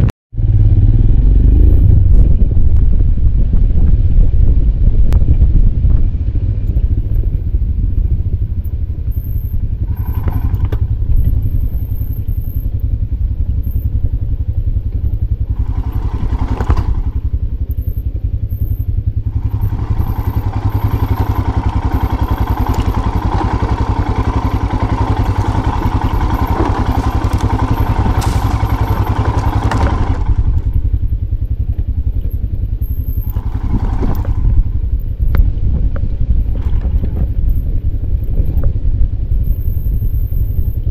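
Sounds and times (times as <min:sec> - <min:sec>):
motorcycle engine running: 0:00.0 - 0:40.9
clatter and thuds over stones: 0:15.6 - 0:17.4, 0:19.4 - 0:30.9, 0:33.0 - 0:39.2.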